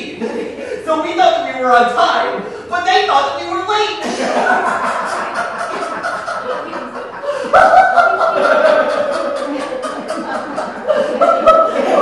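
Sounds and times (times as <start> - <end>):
people laughing: 0.0 - 0.8, 3.9 - 12.0
loud high laugh: 4.0 - 12.0.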